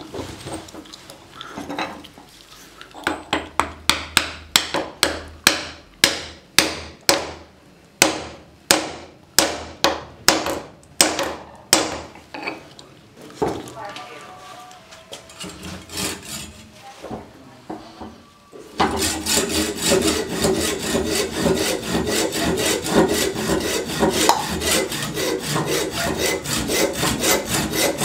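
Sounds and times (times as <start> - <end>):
hammer striking wooden handle: 3.1 - 7.4, 8.0 - 12.1, 18.8 - 25.8.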